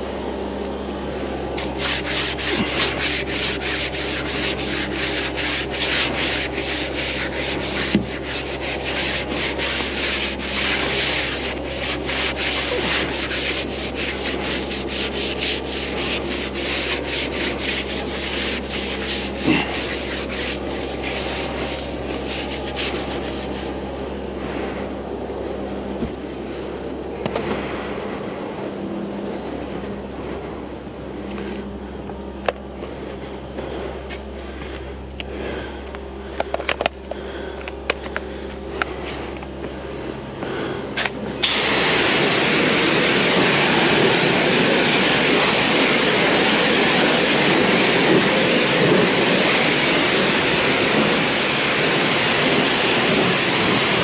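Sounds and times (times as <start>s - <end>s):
steady low hum: 0.0s - 54.0s
brush scrubbing a metal wheel: 1.6s - 23.8s, 41.4s - 54.0s.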